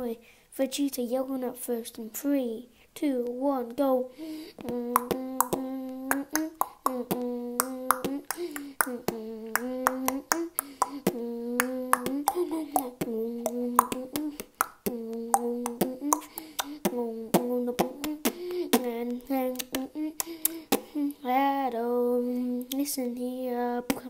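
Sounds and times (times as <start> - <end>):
beatboxing mouth clicks: 4.6 - 21.2, 22.6 - 22.9
hummed notes: 4.6 - 21.2.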